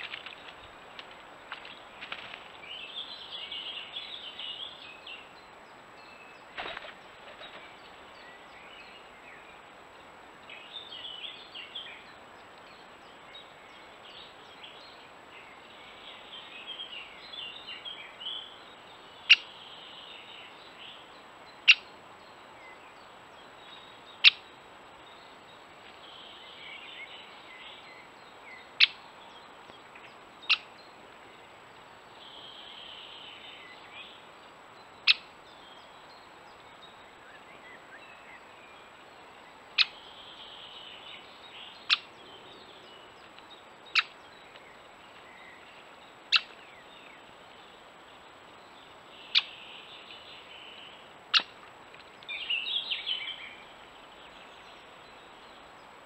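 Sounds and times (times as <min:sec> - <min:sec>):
faint birdsong: 0:00.0 - 0:56.0
woodpecker sharp kik calls: 0:41.8 - 0:42.1, 0:43.9 - 0:44.2, 0:46.3 - 0:46.6, 0:51.3 - 0:51.6.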